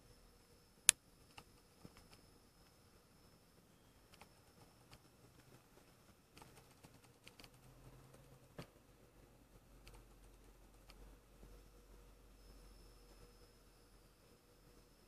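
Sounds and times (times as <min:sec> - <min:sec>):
small irregular clicks: 0:00.8 - 0:02.8, 0:04.0 - 0:08.9, 0:09.5 - 0:11.6.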